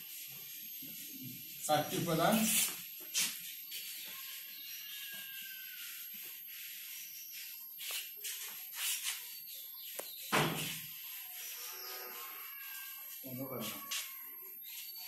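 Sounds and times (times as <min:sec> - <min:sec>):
duster scrubbing chalkboard: 0:00.0 - 0:15.0
thump: 0:10.3 - 0:10.8.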